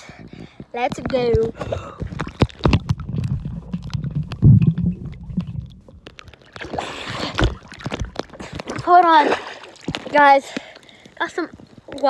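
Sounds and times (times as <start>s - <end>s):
underwater knocks and clicks: 0.3s - 9.2s, 9.8s - 10.7s
muffled underwater rumble: 1.6s - 6.2s.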